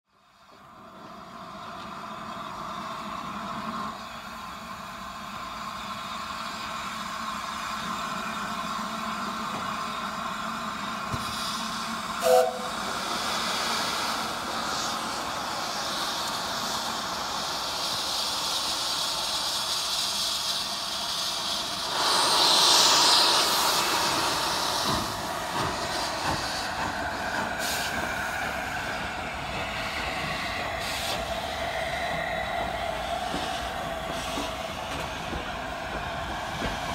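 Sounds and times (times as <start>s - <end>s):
steam locomotive hissing: 0.2s - 36.9s
gush of steam: 11.0s - 36.9s
steam whistle toot: 12.2s - 12.8s.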